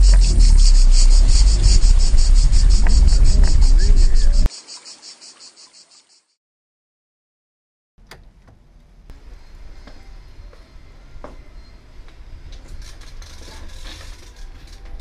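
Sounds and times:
car engine rumble and road noise: 0.0 - 4.5
cicadas chirring: 0.0 - 6.4.

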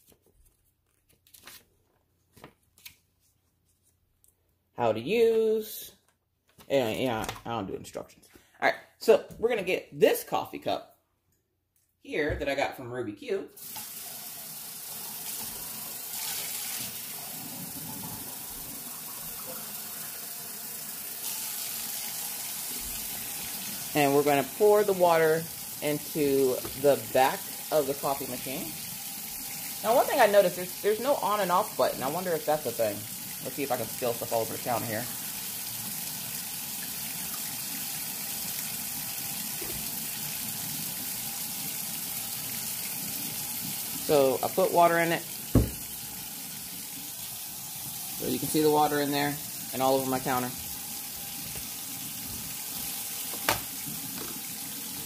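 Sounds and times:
faucet filling cup with water: 13.6 - 55.0.

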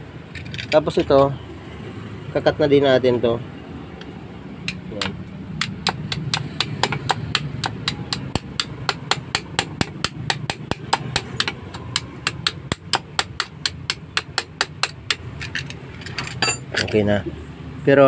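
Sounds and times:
hammer tapping on metal blade: 4.7 - 15.3.

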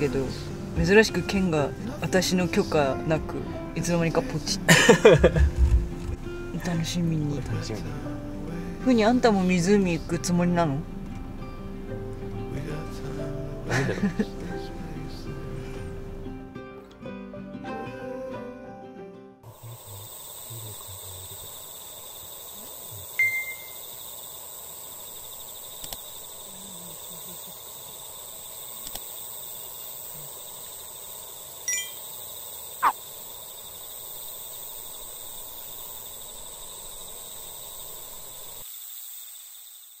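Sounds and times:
steady hiss: 4.4 - 6.5, 19.5 - 40.0.

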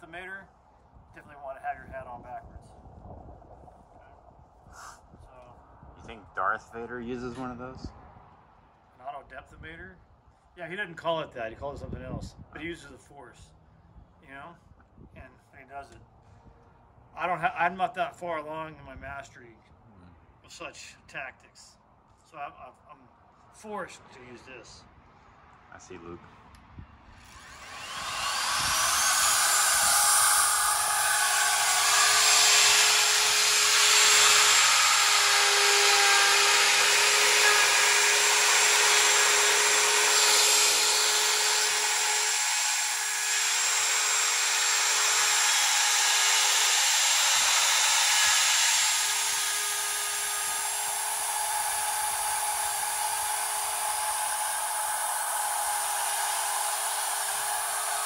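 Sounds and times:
router motor routing wood: 27.2 - 58.0.

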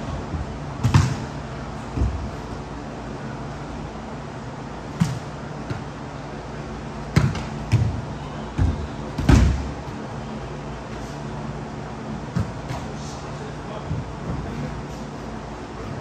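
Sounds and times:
steady low hum: 0.0 - 16.0
thuds: 0.3 - 2.4, 7.1 - 10.0.

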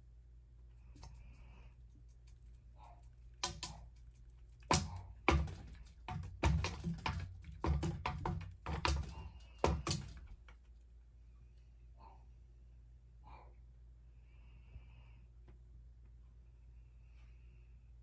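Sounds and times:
cat scrambling on wooden shelf: 4.6 - 10.5
cat hitting fan blades: 4.7 - 10.3.

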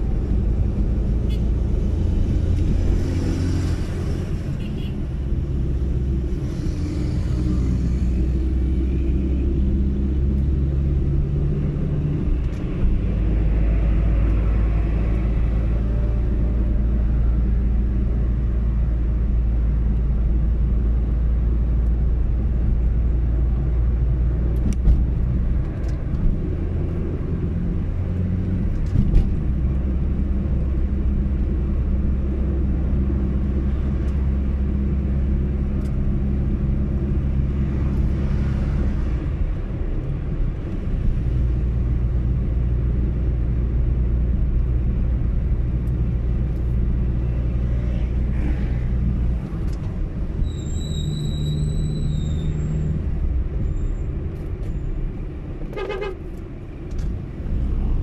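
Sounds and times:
car engine drone: 0.0 - 58.0
road rumble: 0.0 - 58.0.

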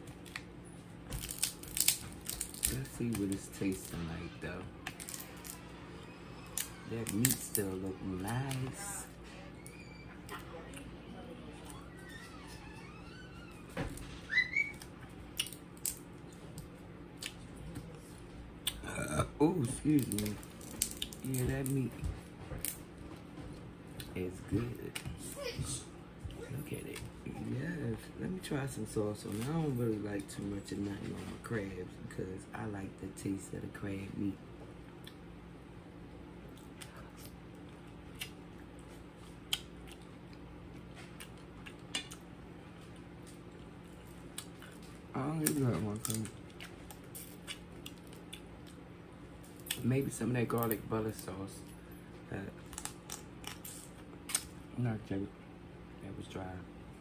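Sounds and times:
soft squishing and chewing: 0.0 - 12.6, 13.4 - 32.0, 33.1 - 54.7
steady low hum: 0.0 - 57.0
crab shell cracking: 1.1 - 4.0, 4.8 - 5.6, 6.5 - 8.7, 14.8 - 17.4, 19.6 - 21.8, 44.0 - 48.8, 52.6 - 54.6
high rising squeak: 11.7 - 14.9.

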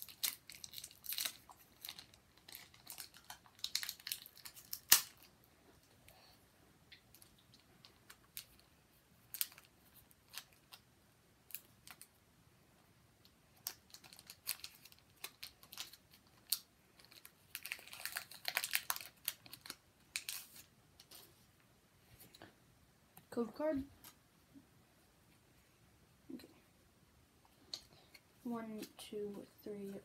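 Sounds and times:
foil wrapper crinkling: 0.0 - 5.3, 9.3 - 10.8, 13.6 - 21.2
foil pack tearing open: 13.9 - 20.7.

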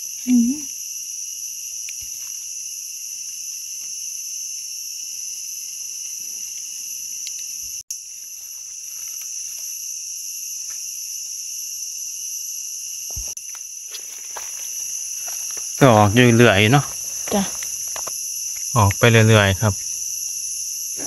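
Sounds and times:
high-pitched insect chorus: 0.0 - 21.0.

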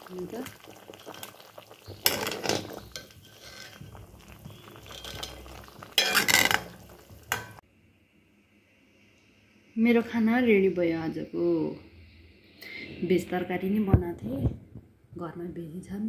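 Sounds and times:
curry bubbling: 0.0 - 7.6
metal ladle scraping iron pot: 1.9 - 7.6.

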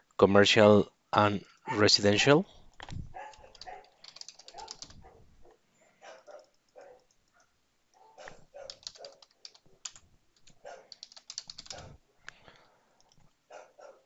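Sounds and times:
typing on computer keyboard: 2.7 - 5.0, 8.3 - 11.9.

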